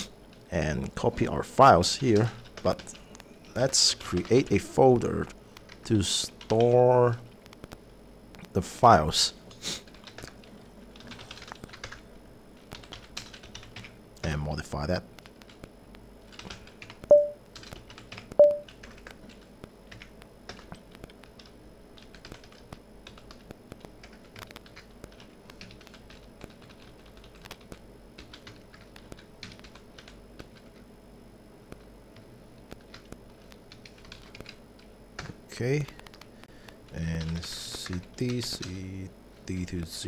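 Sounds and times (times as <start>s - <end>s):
short loud beeps: 17.1s - 17.4s, 18.4s - 18.6s.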